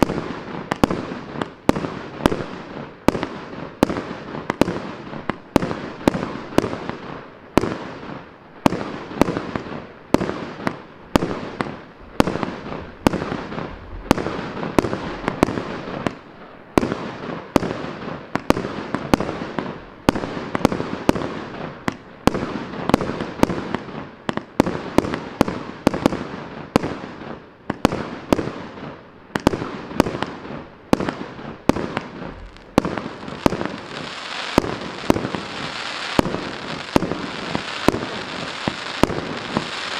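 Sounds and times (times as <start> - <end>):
fireworks bangs: 0.0 - 39.9
fireworks hiss: 29.4 - 39.9
bursting stars crackle: 31.9 - 39.9.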